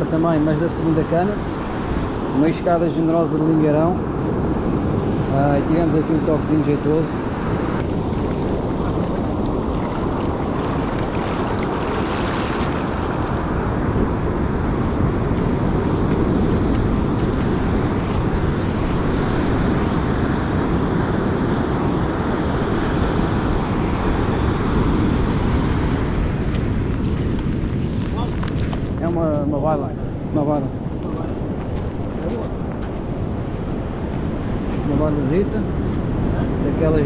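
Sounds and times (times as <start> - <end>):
wind buffeting microphone: 0.0 - 37.0
surf breaking on beach: 6.8 - 28.8.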